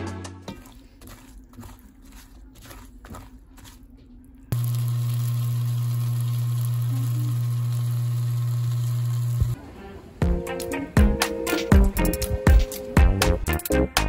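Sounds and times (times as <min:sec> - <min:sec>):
ladle stirring batter: 0:00.4 - 0:05.9
pancake sizzling in pan: 0:04.6 - 0:09.6.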